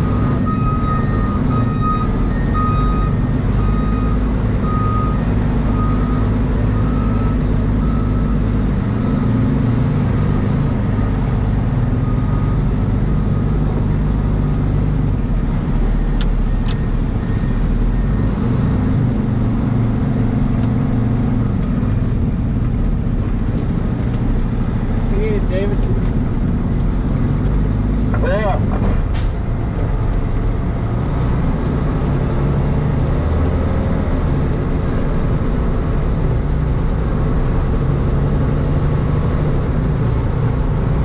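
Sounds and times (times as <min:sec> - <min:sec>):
backup alarm beeping: 0:00.0 - 0:08.4
diesel truck engine: 0:00.0 - 0:41.0.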